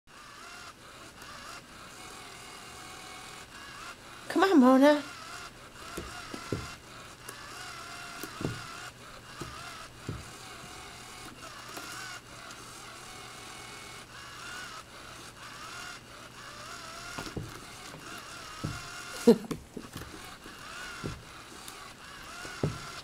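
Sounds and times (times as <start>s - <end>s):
small electric motor whining: 0.1s - 23.0s
soft thumps: 5.8s - 12.1s, 17.1s - 23.0s.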